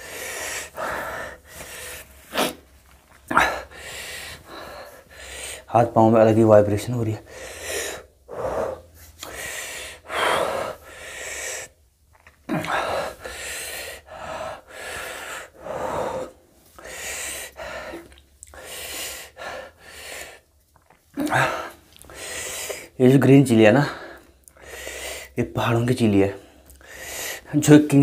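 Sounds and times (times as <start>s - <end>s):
man gasping and breathing hard: 0.0s - 2.7s, 3.3s - 5.7s, 7.2s - 11.8s, 12.5s - 20.5s, 21.2s - 23.0s, 23.8s - 25.4s, 26.4s - 27.6s.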